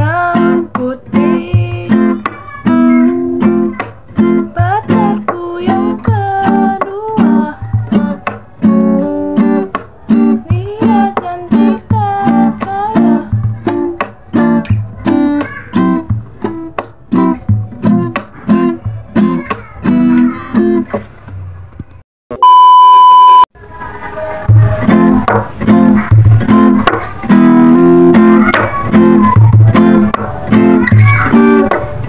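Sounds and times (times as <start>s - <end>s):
acoustic guitar strumming: 0.0s - 21.0s, 23.9s - 32.0s
high test-tone beep: 22.3s - 23.5s.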